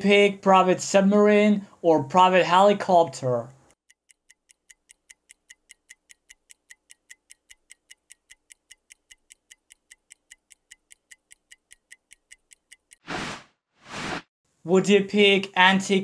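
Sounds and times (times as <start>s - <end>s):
timer ticking rapidly: 3.6s - 13.1s.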